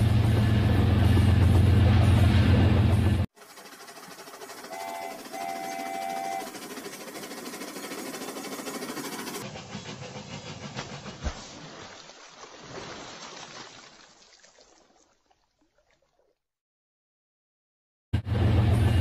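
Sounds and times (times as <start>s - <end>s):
toy train whistle: 4.6s - 6.6s.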